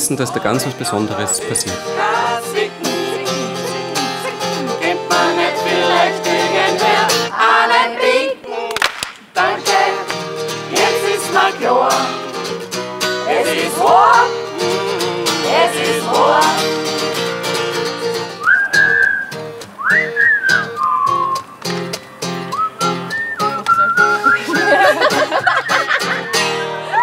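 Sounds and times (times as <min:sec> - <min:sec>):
strummed acoustic guitar: 0:00.0 - 0:08.0, 0:09.4 - 0:27.0
group of voices singing: 0:00.0 - 0:12.5, 0:13.1 - 0:17.4.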